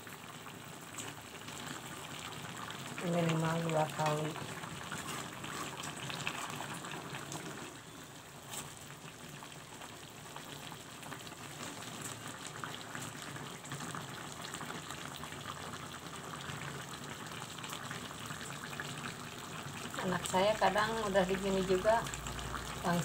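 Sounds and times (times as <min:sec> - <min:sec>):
broth bubbling and crackling: 0:00.0 - 0:23.0
metal spatula turning food: 0:04.8 - 0:06.5.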